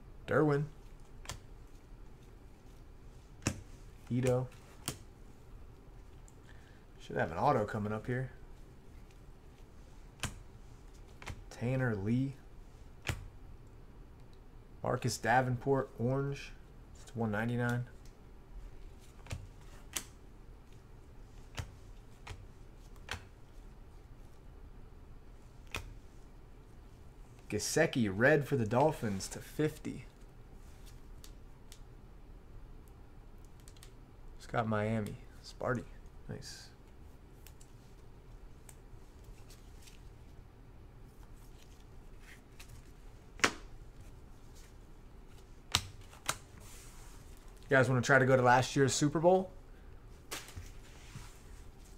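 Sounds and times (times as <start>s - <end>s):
low steady hum: 0.0s - 51.9s.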